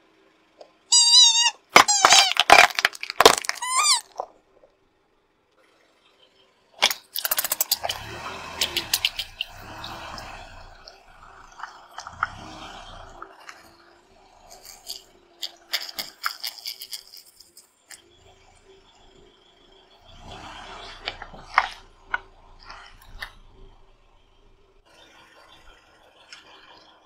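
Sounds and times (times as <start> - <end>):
plastic bottles crunching under tyre: 1.6 - 4.4.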